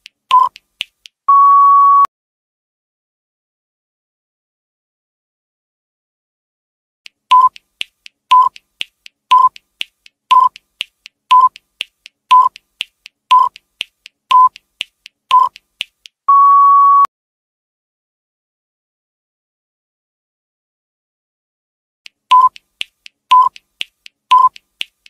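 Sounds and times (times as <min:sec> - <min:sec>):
light ticks: 0:00.0 - 0:01.2, 0:07.1 - 0:16.2, 0:22.1 - 0:25.0
electronic countdown beeps: 0:00.3 - 0:00.6, 0:01.3 - 0:02.1, 0:07.3 - 0:07.6, 0:08.3 - 0:08.6, 0:09.3 - 0:09.6, 0:10.3 - 0:10.6, 0:11.3 - 0:11.6, 0:12.3 - 0:12.6, 0:13.3 - 0:13.6, 0:14.3 - 0:14.6, 0:15.3 - 0:15.6, 0:16.3 - 0:17.1, 0:22.3 - 0:22.6, 0:23.3 - 0:23.6, 0:24.3 - 0:24.6.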